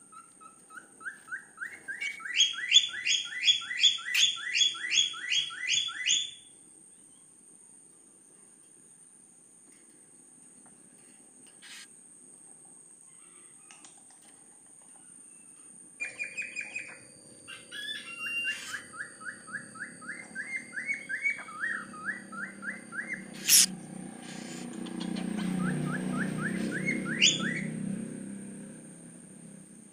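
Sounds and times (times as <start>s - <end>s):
cockatiel chirping: 0.1s - 6.4s, 11.6s - 11.9s, 16.1s - 27.7s.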